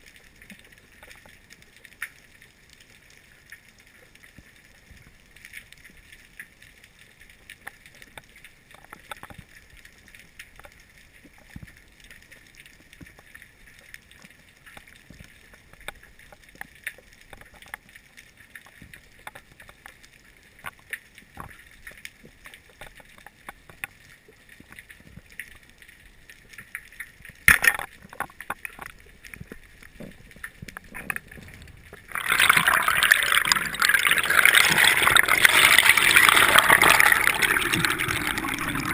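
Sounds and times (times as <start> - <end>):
faint clicks and crackles: 0.0 - 38.9
rush of water: 31.0 - 38.9.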